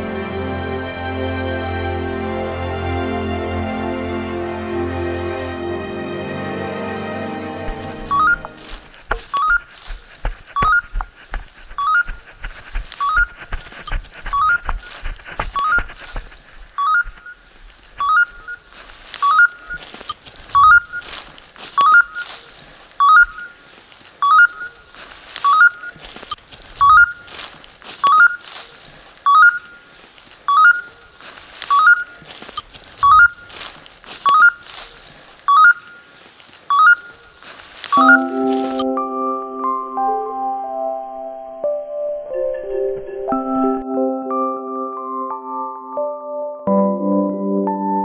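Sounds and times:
footsteps in dry leaves: 7.6s - 38.9s
beeper collar chirping: 8.0s - 9.6s, 10.6s - 11.0s, 11.8s - 12.2s, 16.8s - 17.4s, 18.0s - 18.6s, 19.2s - 19.8s, 20.6s - 21.0s, 23.0s - 23.5s, 29.3s - 29.8s, 33.0s - 33.4s, 35.5s - 36.0s, 37.9s - 38.9s.

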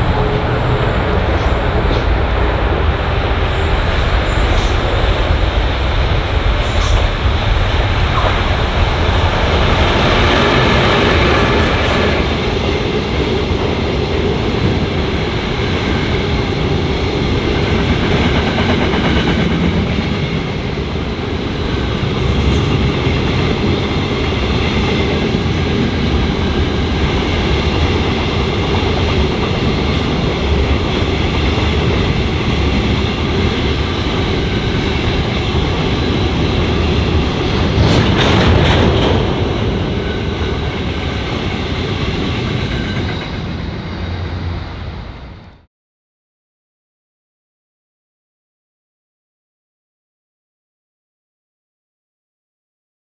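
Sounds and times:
train wheels clattering on rails: 0.0s - 44.2s
diesel locomotive passing: 0.0s - 45.7s.

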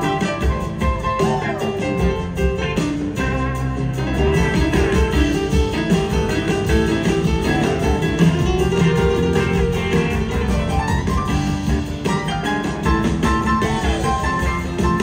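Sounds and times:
live rock band playing: 0.0s - 15.0s.

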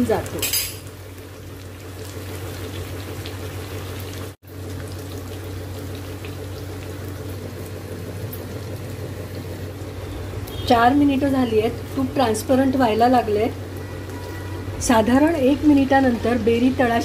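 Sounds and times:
butter bubbling and crackling: 0.8s - 12.8s.

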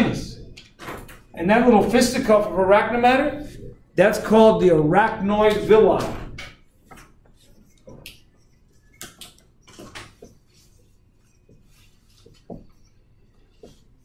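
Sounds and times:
marker writing on whiteboard: 5.4s - 14.0s.

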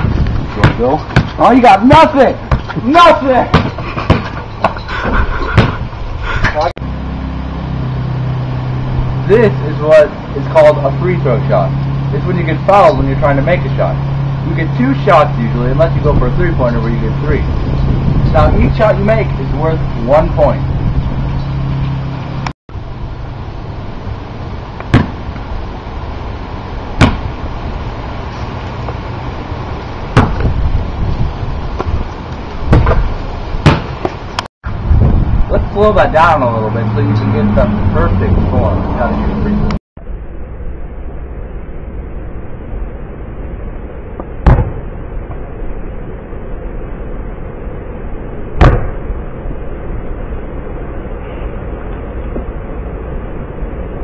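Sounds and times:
wind buffeting microphone: 0.0s - 1.4s, 15.3s - 23.0s, 29.9s - 33.6s, 34.2s - 39.8s
basketball bouncing on concrete: 0.0s - 4.8s, 5.6s - 5.8s, 27.0s - 27.3s, 30.2s - 30.5s, 32.7s - 34.2s, 44.4s - 44.8s
wind noise on microphone: 0.0s - 6.8s, 14.5s - 54.0s.

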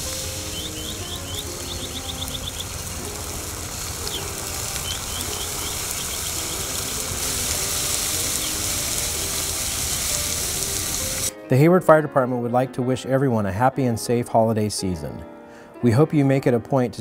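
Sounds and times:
birds chirping: 0.0s - 11.2s
hot oil sizzling: 0.0s - 11.3s.

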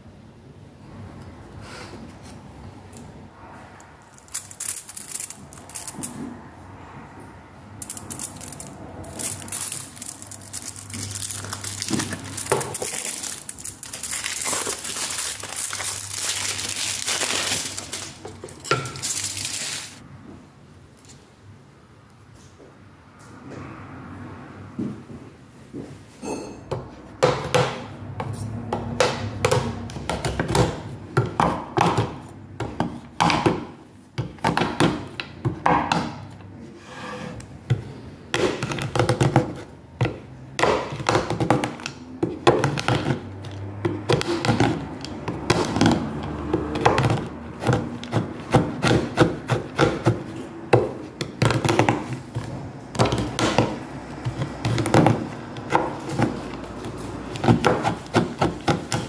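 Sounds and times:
knife chopping on wooden board: 43.9s - 59.0s.

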